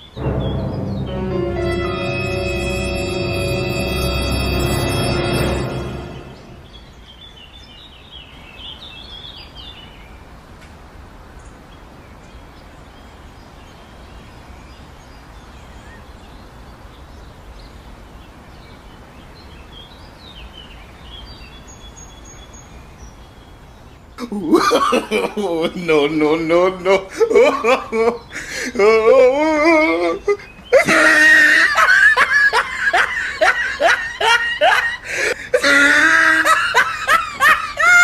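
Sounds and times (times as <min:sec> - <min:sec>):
outdoor background noise: 0:00.0 - 0:01.3, 0:05.4 - 0:38.0
music: 0:00.0 - 0:06.8
birds chirping: 0:00.0 - 0:10.0, 0:13.4 - 0:38.0.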